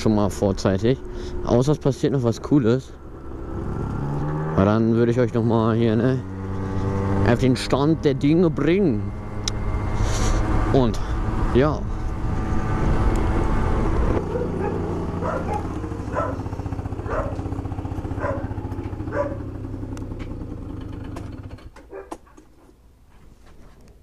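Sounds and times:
scooter engine slowing to idle: 0.0s - 4.4s, 5.4s - 22.6s
dog barking: 14.3s - 17.5s, 18.2s - 19.5s, 21.9s - 22.4s
engine clicks: 17.1s - 24.0s.

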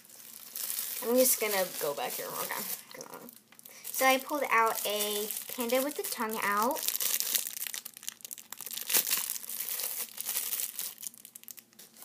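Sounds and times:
plastic wrapper crinkling: 0.0s - 12.0s.

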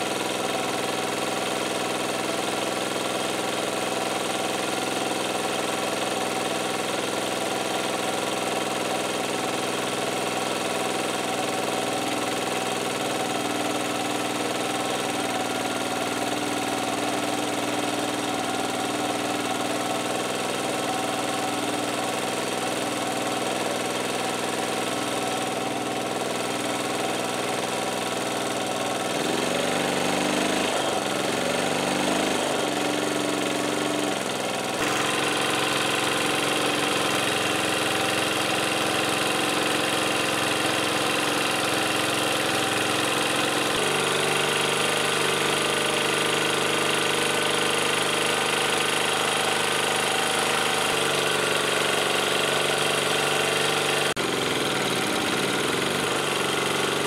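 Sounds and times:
generator petrol engine running: 0.0s - 57.0s.

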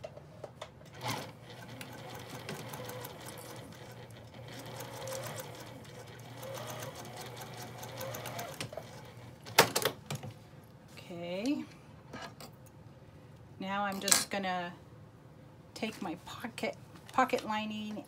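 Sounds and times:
sewing machine running: 1.0s - 9.2s.

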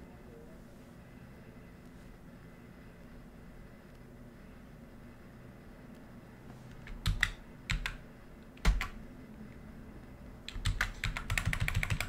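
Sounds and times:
computer keyboard typing: 6.8s - 8.0s, 8.6s - 9.0s, 10.5s - 12.0s.

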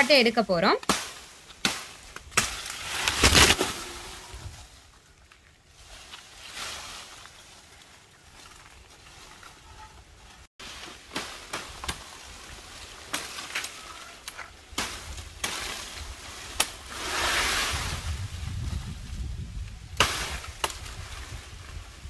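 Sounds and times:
leaves rustling: 0.0s - 22.0s
knife chopping branches: 0.7s - 4.0s, 10.6s - 16.9s, 20.0s - 21.0s.

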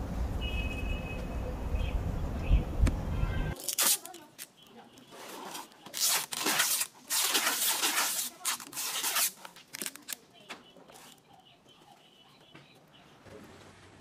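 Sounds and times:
packing tape ripping off roll: 3.6s - 4.5s, 5.2s - 10.2s.

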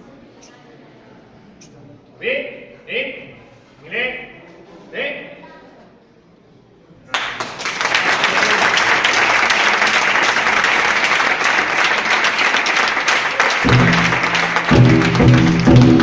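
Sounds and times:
audience clapping: 7.1s - 16.0s
low music with drum beat: 13.6s - 16.0s.

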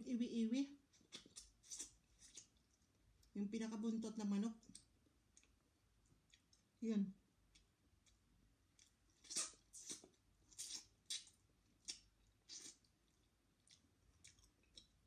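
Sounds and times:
wet chewing and mouth smacks: 0.9s - 3.4s, 4.6s - 6.7s, 7.5s - 15.0s.

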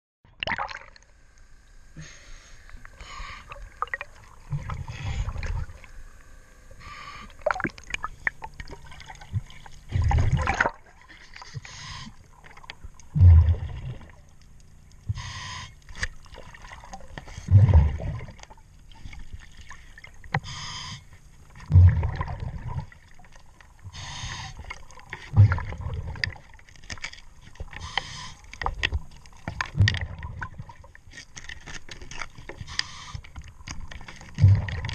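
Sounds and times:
diver breathing through regulator: 2.0s - 3.7s, 4.5s - 5.8s, 6.7s - 7.5s, 11.2s - 12.2s, 15.1s - 15.8s, 20.4s - 21.2s, 23.9s - 25.8s, 27.7s - 28.6s, 32.6s - 33.4s
gurgling exhaust bubbles: 13.1s - 14.3s, 16.3s - 18.6s, 21.6s - 23.2s, 25.3s - 26.5s, 29.5s - 30.8s, 34.3s - 34.9s.

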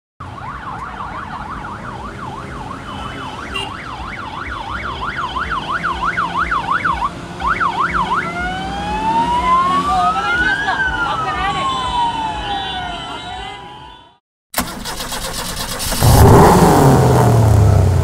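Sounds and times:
electronic vehicle siren: 0.2s - 14.2s
fainter higher siren: 3.9s - 14.2s.

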